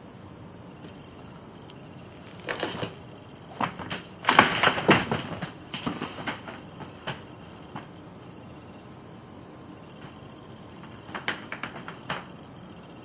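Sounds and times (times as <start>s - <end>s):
rustles in plastic pool: 2.1s - 7.9s.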